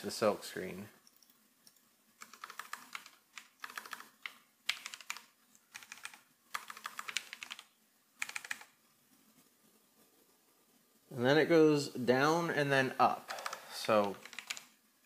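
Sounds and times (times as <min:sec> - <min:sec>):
typing on computer keyboard: 0:01.1 - 0:08.8, 0:13.3 - 0:14.8.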